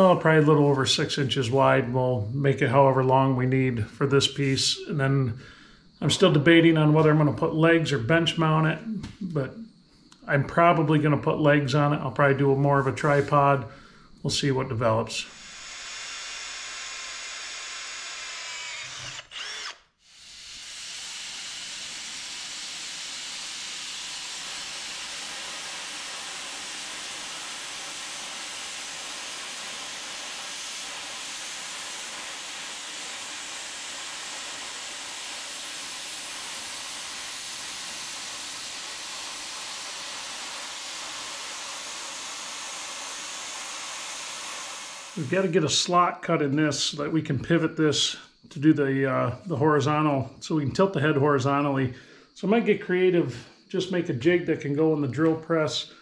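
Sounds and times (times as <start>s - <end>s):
plasma cutter hissing: 15.3s - 17.8s, 19.4s - 45.6s
cordless drill whining: 15.3s - 45.4s.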